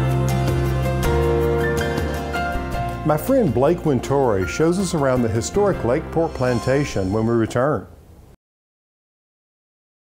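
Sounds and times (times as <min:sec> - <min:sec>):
faint background music: 0:00.0 - 0:08.0.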